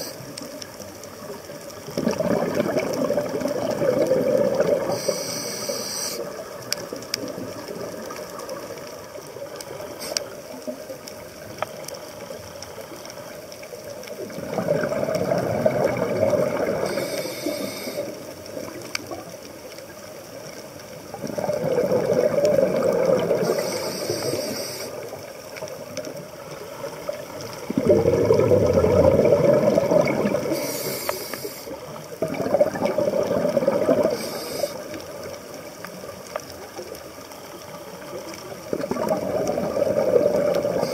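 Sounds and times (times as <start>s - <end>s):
low underwater hiss: 0.0s - 40.9s
exhaled bubbles rushing: 1.2s - 5.2s, 14.2s - 17.0s, 21.1s - 24.4s, 26.5s - 30.7s, 32.0s - 36.6s, 38.4s - 40.9s
regulator high hiss: 4.9s - 6.4s, 9.9s - 10.5s, 16.8s - 18.3s, 23.4s - 25.0s, 30.5s - 31.8s, 34.1s - 35.0s.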